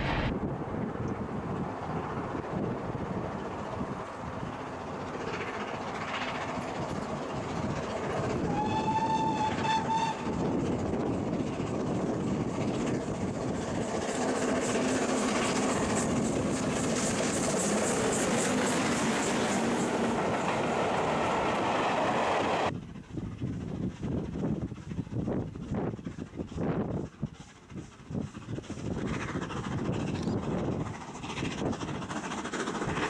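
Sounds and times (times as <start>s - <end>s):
steam locomotive passing: 0.0s - 33.0s
train whistle: 8.4s - 10.5s.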